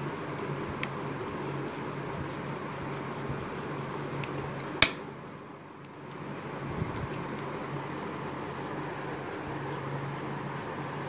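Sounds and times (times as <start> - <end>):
memory stick snapping into slot: 4.2 - 5.0.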